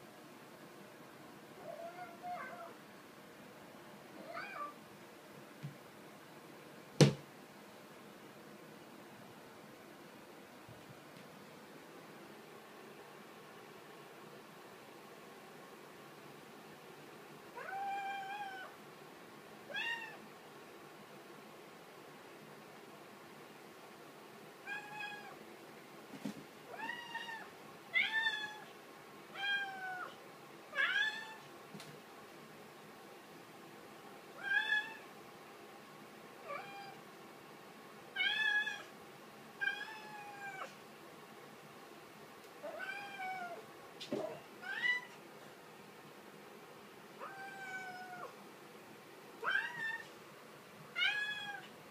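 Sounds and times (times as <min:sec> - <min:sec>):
young cat meowing: 0:01.6 - 0:02.8, 0:04.2 - 0:04.8, 0:29.4 - 0:30.2, 0:34.4 - 0:35.0, 0:36.5 - 0:37.0, 0:47.2 - 0:48.3, 0:49.4 - 0:50.1, 0:51.0 - 0:51.7.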